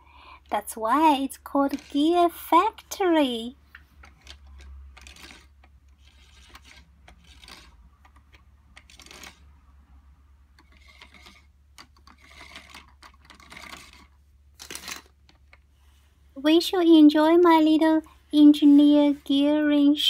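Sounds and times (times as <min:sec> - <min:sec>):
plastic toy gears clicking: 0:00.4 - 0:09.6, 0:10.5 - 0:15.7.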